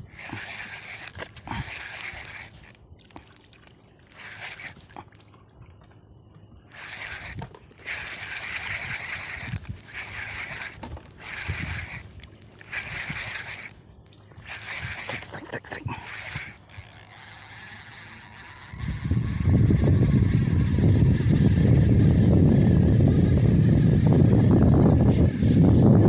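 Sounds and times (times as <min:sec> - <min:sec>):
water splashing against boat: 0:06.9 - 0:16.6.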